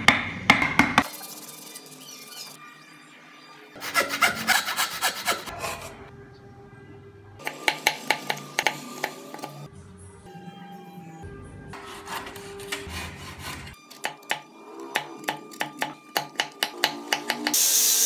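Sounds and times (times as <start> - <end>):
chisel cutting wood: 3.8 - 5.9, 11.8 - 17.6
pencil scratching on wood: 11.8 - 13.8.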